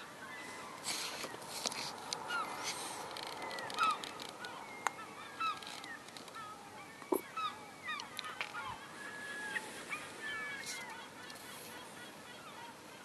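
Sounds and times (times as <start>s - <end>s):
gulls calling: 2.2s - 13.0s.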